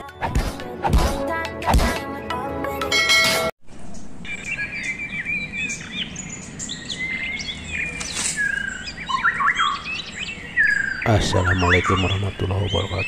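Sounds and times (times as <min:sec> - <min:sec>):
birds chirping and twittering: 0:03.7 - 0:13.0.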